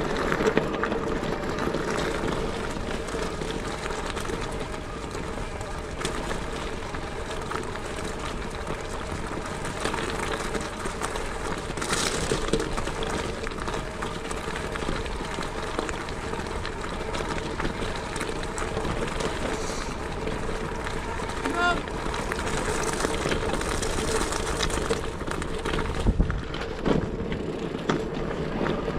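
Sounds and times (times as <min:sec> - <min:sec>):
bicycle road noise: 0:00.0 - 0:28.9
wind noise: 0:22.0 - 0:27.7.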